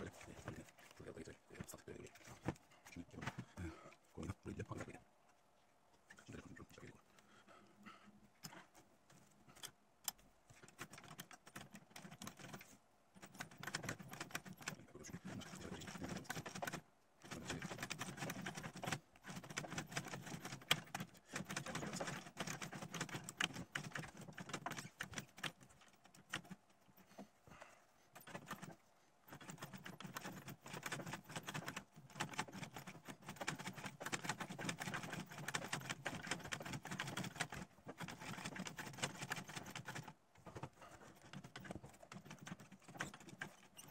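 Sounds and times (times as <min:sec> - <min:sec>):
sewing machine clicking: 0:09.6 - 0:26.6, 0:28.2 - 0:43.9.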